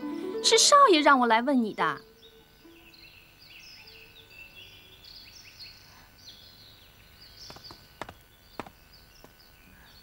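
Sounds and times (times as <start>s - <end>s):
birds chirping and twittering: 0.6s - 10.0s
soft footstep taps: 7.4s - 9.4s.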